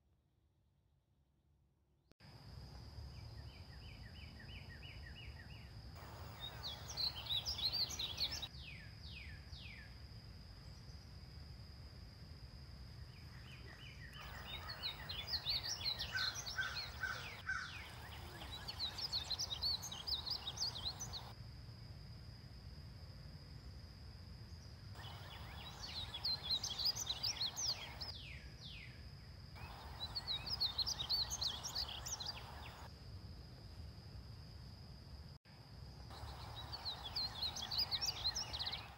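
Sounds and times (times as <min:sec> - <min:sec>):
bird singing warbling notes: 0:06.0 - 0:08.5, 0:14.2 - 0:21.3, 0:25.0 - 0:28.3, 0:29.6 - 0:32.8, 0:36.2 - 0:38.9
steady high whine: 0:06.0 - 0:08.5, 0:14.2 - 0:21.4, 0:25.0 - 0:28.2, 0:29.6 - 0:32.9, 0:35.9 - 0:38.9.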